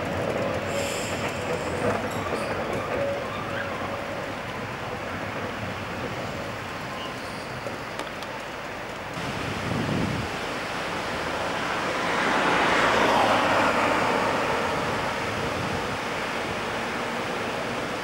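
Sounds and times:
car tyre noise passing: 9.2s - 18.0s.

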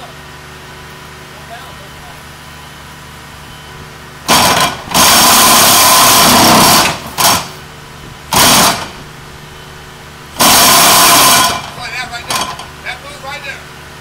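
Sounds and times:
machine engine running: 0.0s - 14.0s
pile-driving hammer pounding: 4.3s - 7.6s.

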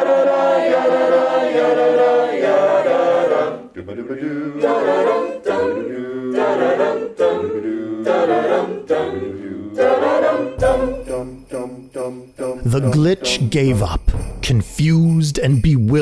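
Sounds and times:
a cappella group singing: 0.0s - 13.5s
jingling bells: 10.6s - 16.0s.

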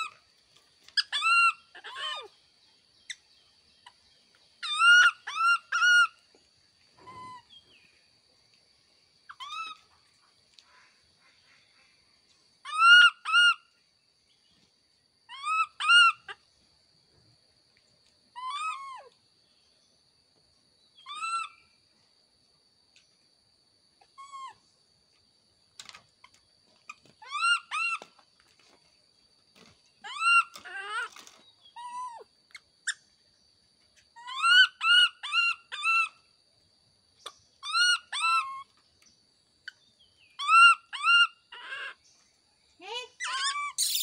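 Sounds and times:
baby monkey cooing: 18.4s - 19.2s, 40.4s - 42.0s, 43.2s - 44.0s.

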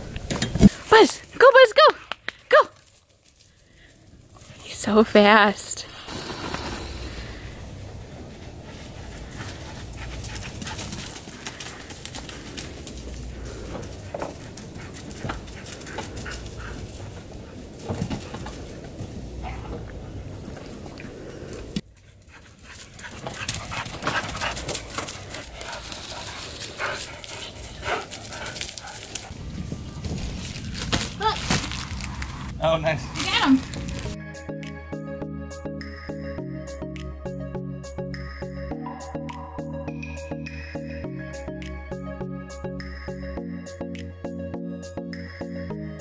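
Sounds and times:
dog panting: 7.8s - 18.4s, 21.9s - 29.3s.

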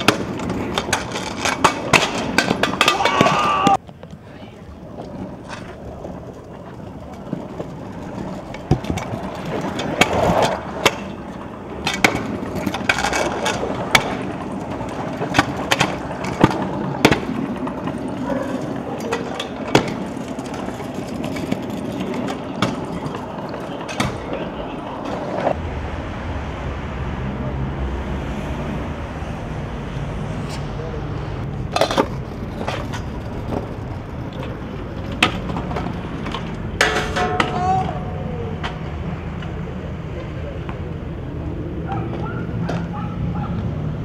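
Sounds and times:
scooter deck clacking on ground: 0.0s - 4.2s, 4.9s - 25.6s, 31.6s - 39.6s
scooter wheels rolling: 0.0s - 25.8s, 28.7s - 44.0s.

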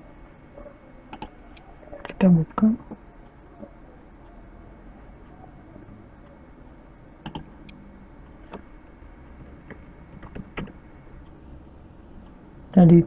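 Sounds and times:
computer keyboard keystrokes: 1.1s - 1.4s, 7.2s - 7.8s, 9.4s - 10.8s.

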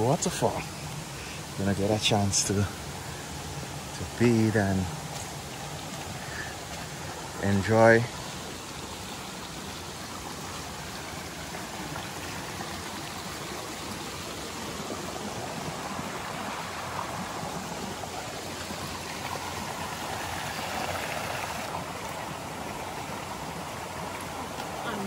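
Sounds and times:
river rushing: 0.0s - 25.0s.

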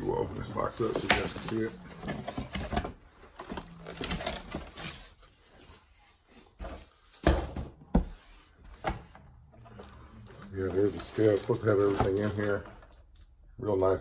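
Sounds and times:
cardboard box rustling: 0.1s - 7.1s, 9.7s - 12.7s.

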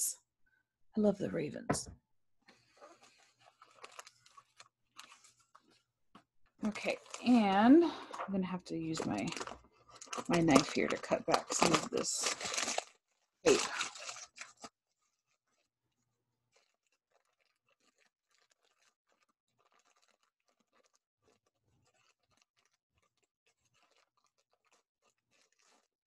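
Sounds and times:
cardboard crinkles and scratches: 2.5s - 5.8s, 6.6s - 25.9s
knife scraping packing tape: 12.2s - 15.7s, 16.5s - 25.9s.

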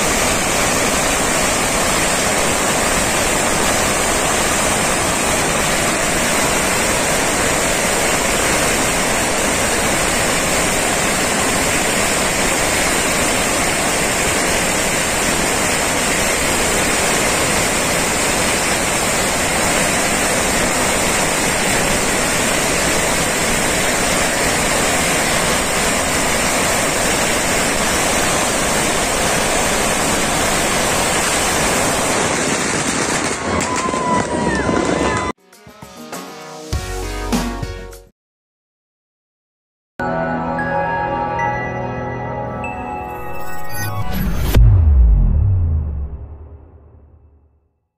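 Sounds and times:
firecrackers crackling: 0.0s - 35.4s.

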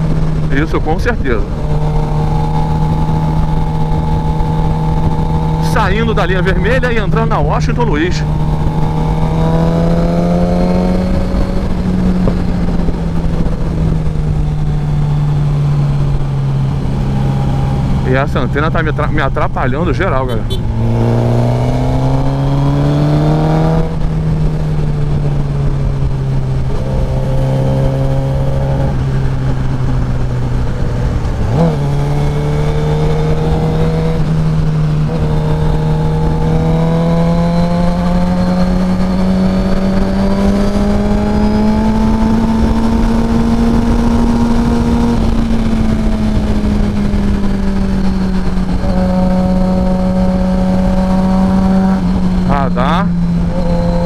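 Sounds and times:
motorcycle engine cruising: 0.0s - 54.0s
wind and road noise: 0.0s - 54.0s.

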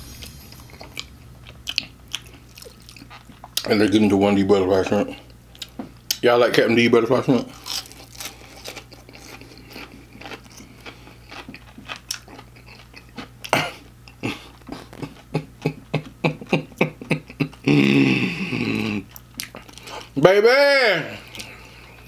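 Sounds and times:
crunchy chewing: 0.2s - 3.7s, 7.4s - 16.2s, 18.8s - 20.2s, 21.2s - 22.0s.

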